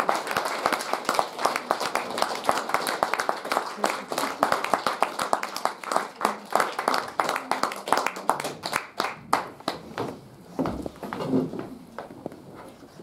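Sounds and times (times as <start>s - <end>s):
small audience clapping: 0.0s - 10.2s.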